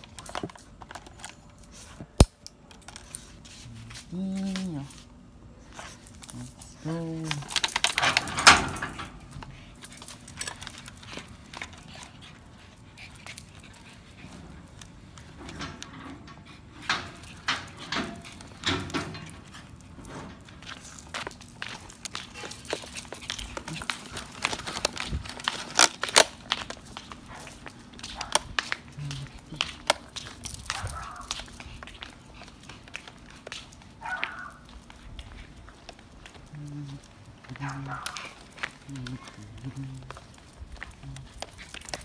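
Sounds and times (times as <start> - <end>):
dog paws clicking on hard ground: 0.0 - 42.0
leash scraping rustle: 2.9 - 15.7, 16.4 - 42.0
footsteps on hard ground: 19.3 - 42.0.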